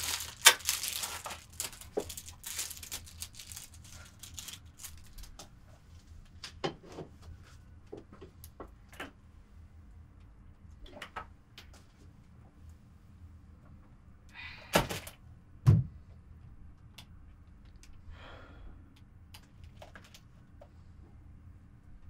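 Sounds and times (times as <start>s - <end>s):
breathy rush of air: 18.0s - 18.9s.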